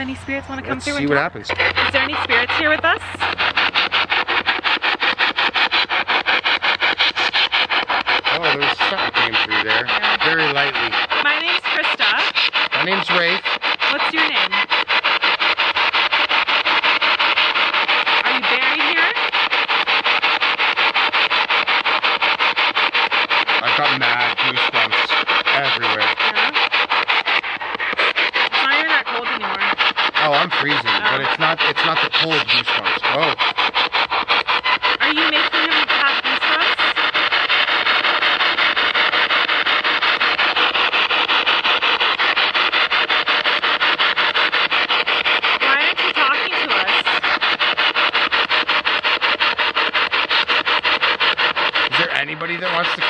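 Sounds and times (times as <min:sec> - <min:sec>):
brief pitched radio sound: 0:00.0 - 0:03.4, 0:08.3 - 0:14.7, 0:27.6 - 0:33.5
radio static sweeping stations: 0:00.0 - 0:53.0.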